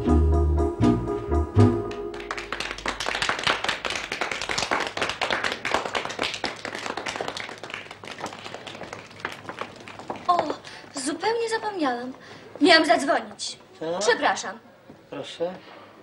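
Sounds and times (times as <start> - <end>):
organ dance music: 0.0 - 3.0
crowd hand-clapping: 1.9 - 11.2.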